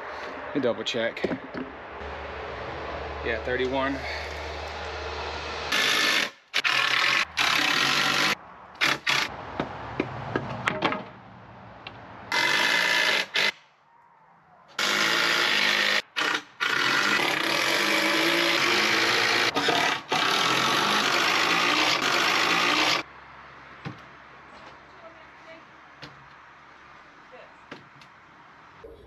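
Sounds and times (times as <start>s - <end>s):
electric power saw cutting wood: 2.9s - 9.3s, 12.3s - 13.6s, 14.8s - 23.1s.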